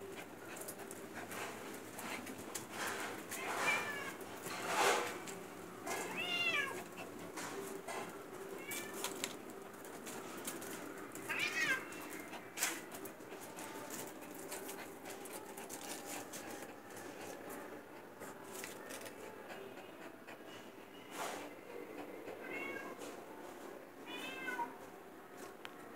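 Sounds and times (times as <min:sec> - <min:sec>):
cat meowing: 0:06.1 - 0:06.8, 0:08.6 - 0:09.2, 0:11.3 - 0:12.0, 0:22.4 - 0:23.0, 0:24.1 - 0:24.8.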